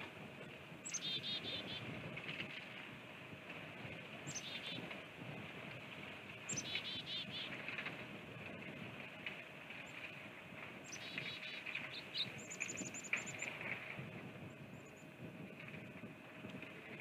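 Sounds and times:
steady outdoor hiss: 0:00.0 - 0:17.0
birds chirping: 0:00.8 - 0:01.9, 0:04.2 - 0:04.9, 0:06.4 - 0:07.6, 0:10.8 - 0:13.6
songbird singing phrase: 0:00.8 - 0:01.9, 0:04.3 - 0:04.9, 0:06.5 - 0:07.6, 0:10.8 - 0:13.5.

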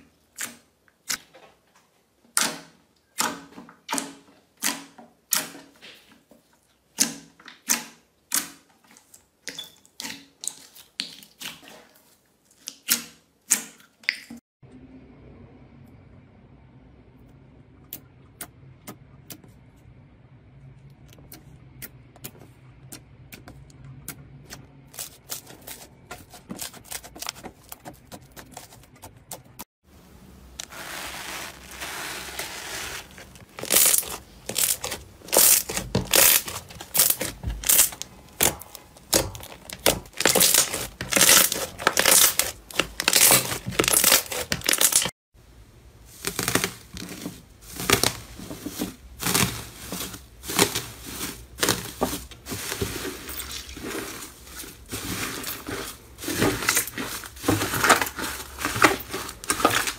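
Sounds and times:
foil crinkling: 0:30.6 - 0:45.1, 0:46.1 - 0:59.9
slime crackling and popping: 0:30.6 - 0:45.1, 0:46.1 - 0:48.2.

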